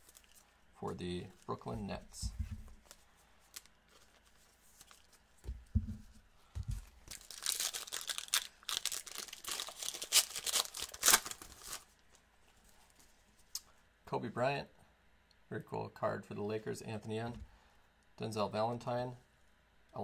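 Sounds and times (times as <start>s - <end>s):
soft low handling thumps: 1.8s - 2.8s, 5.4s - 6.9s
plastic wrapper tearing and crinkling: 6.8s - 11.9s.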